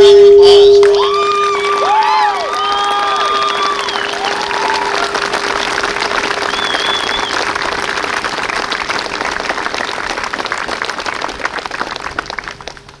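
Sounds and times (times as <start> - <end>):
crowd applause: 0.9 - 13.0
short whistle: 6.5 - 7.4.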